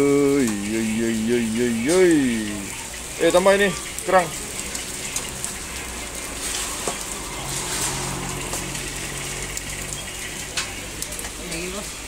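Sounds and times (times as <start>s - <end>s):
low drone: 5.1s - 10.1s.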